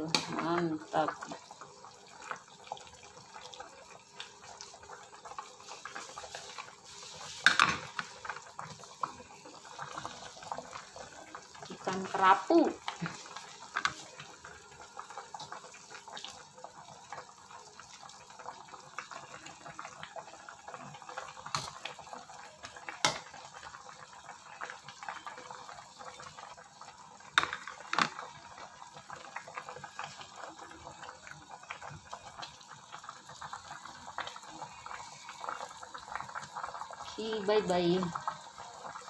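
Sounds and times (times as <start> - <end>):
soup bubbling in a wok: 0.0 - 39.0.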